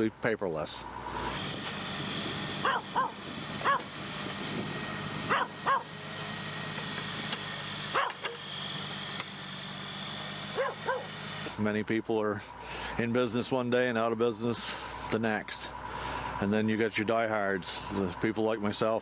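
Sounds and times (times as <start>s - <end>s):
steady machine hum: 0.8s - 19.0s
dog barking: 2.6s - 3.9s, 5.3s - 5.9s, 8.0s - 8.4s, 10.6s - 11.1s.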